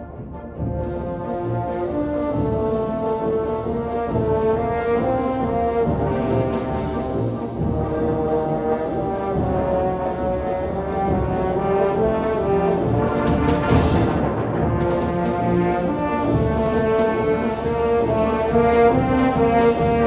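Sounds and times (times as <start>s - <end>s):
orchestral music with brass: 0.0s - 20.0s
percussion strokes: 11.0s - 20.0s.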